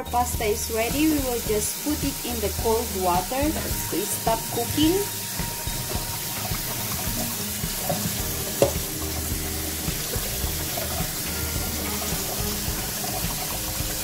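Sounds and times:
tap water running into colander: 0.0s - 14.0s
sharp knock: 8.6s - 8.9s.

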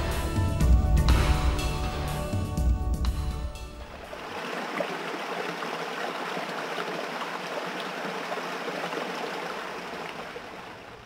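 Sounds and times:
stream water rushing: 3.8s - 11.0s.

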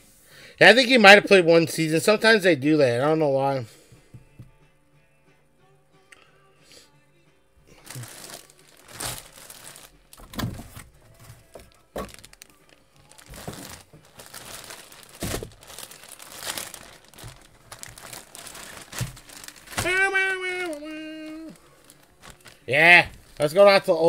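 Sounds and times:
plastic bag crinkling: 7.8s - 10.3s, 11.5s - 23.8s.

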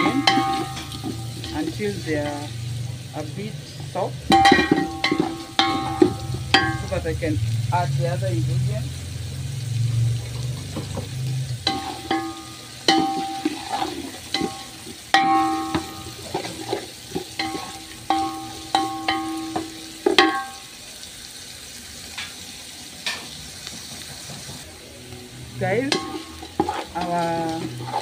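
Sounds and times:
wooden spoon knocking metal pot: 0.0s - 2.5s, 4.2s - 7.1s, 10.6s - 20.7s, 25.9s - 28.0s
vegetables sizzling in oil: 0.0s - 28.0s.

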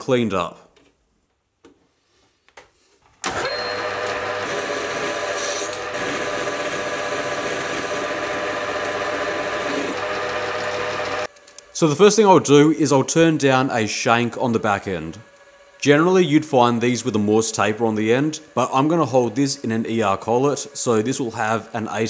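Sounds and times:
metal lathe running: 3.3s - 11.3s.

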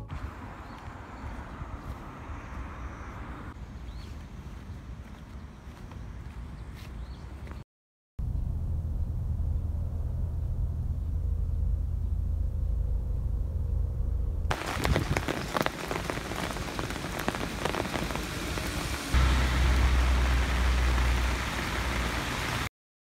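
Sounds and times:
low steady rumble: 8.2s - 15.2s, 19.1s - 22.6s
heavy rain on asphalt road: 14.5s - 22.7s.

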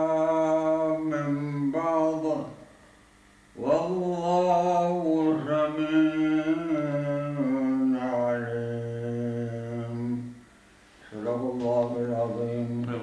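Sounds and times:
man chanting recitation: 0.0s - 2.6s, 3.6s - 10.4s, 11.0s - 13.0s.

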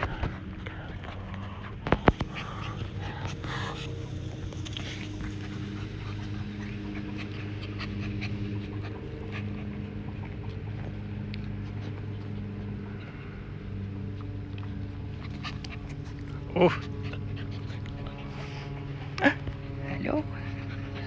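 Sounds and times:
puppies moving about: 0.0s - 13.1s
low mechanical hum: 0.0s - 21.0s.

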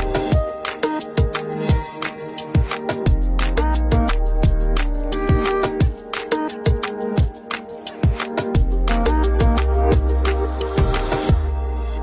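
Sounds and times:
steady kick drum beat: 2.6s - 11.5s.

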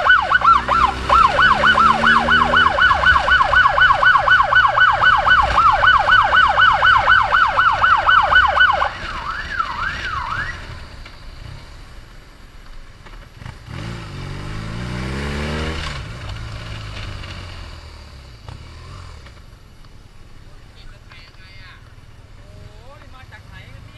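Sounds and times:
electronic siren yelping: 0.0s - 10.8s
motorcycle engine revving: 0.0s - 12.3s, 13.0s - 19.6s
road noise: 0.0s - 23.9s.

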